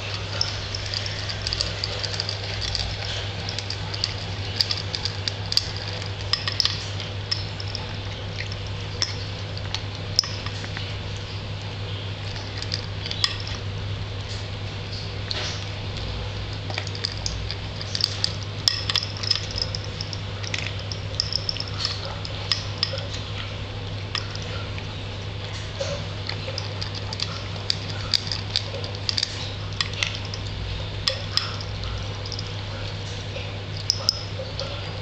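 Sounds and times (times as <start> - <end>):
cat crunching dry kibble: 0.0 - 10.9, 23.9 - 33.1.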